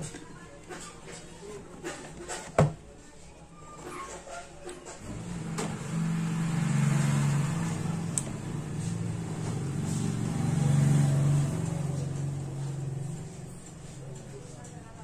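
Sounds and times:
vehicle engine running: 5.0s - 14.5s.

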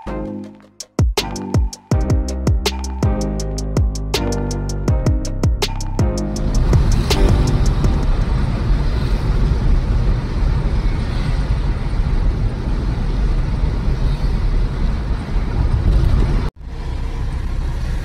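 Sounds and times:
car road and engine noise: 5.6s - 18.0s.

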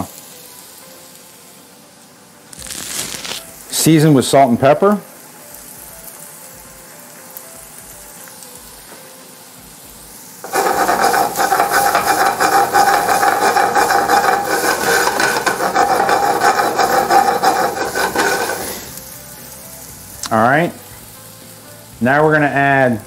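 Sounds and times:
food sizzling in a pan: 0.0s - 23.0s
pan scraping on burner: 2.5s - 3.6s, 10.4s - 19.1s
food sliding in a pan: 2.5s - 3.7s, 10.4s - 19.3s.

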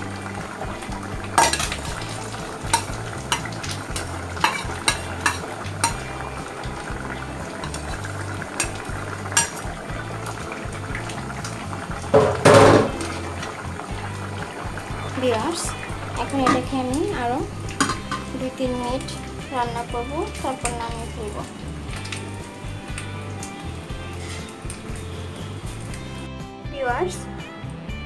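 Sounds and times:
ladle stirring with clatter: 0.3s - 16.8s, 17.7s - 19.2s
ladle clinking against pot: 1.4s - 1.8s, 2.7s - 6.1s, 17.8s - 18.3s.

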